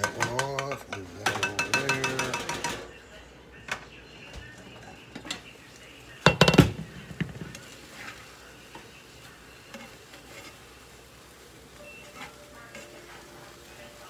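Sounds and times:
light sizzle: 4.4 - 14.0
spatula scraping rice in pan: 7.6 - 11.4, 12.0 - 13.6.

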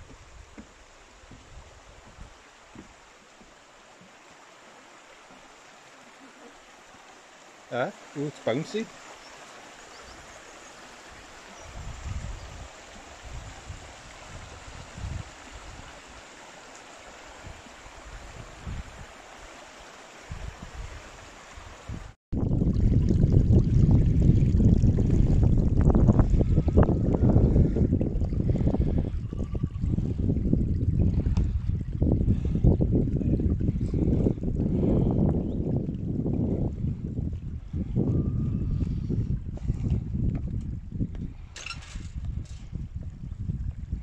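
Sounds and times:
wind rumbling on microphone: 0.0 - 3.0, 11.0 - 16.2, 17.3 - 19.5, 20.2 - 44.0
footsteps on wooden footbridge: 0.0 - 4.3
stream running over stones: 0.0 - 38.2.

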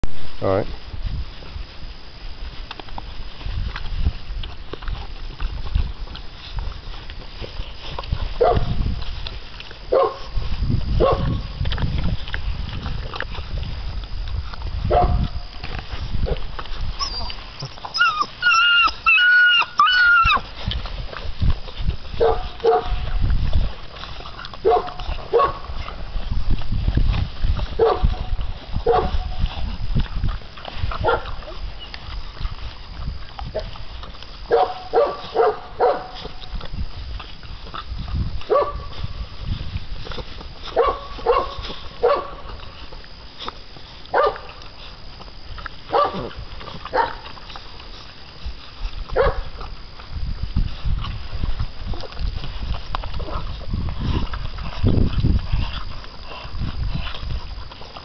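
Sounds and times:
puppies barking and yelping: 15.8 - 26.3, 30.2 - 36.5.

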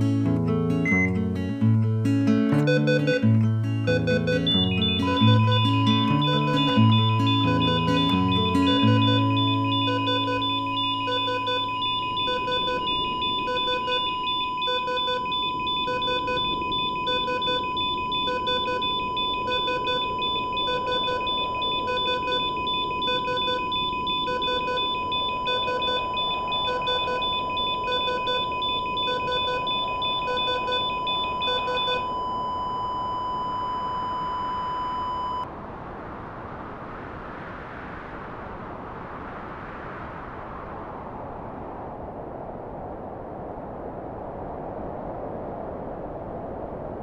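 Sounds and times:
steady flatline tone: 0.0 - 47.0
monitor alarm double beeps: 0.8 - 1.2, 2.5 - 35.5.

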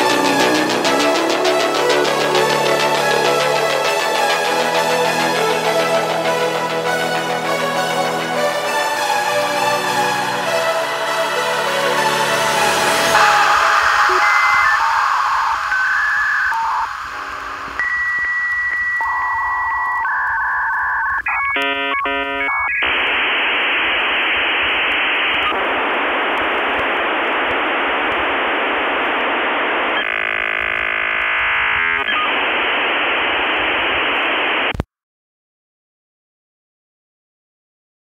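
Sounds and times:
modem hiss: 12.6 - 34.9
dial-up modem tones: 13.2 - 34.8.

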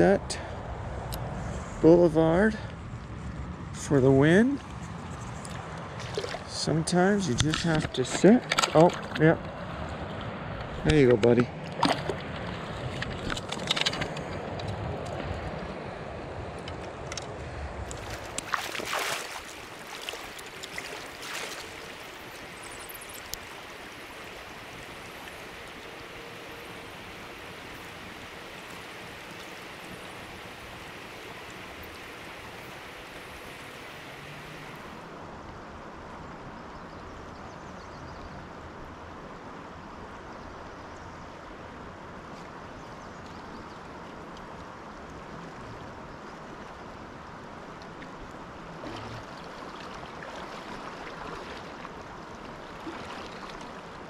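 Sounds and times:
river water rushing: 5.6 - 6.6, 17.8 - 35.4, 46.8 - 54.0.

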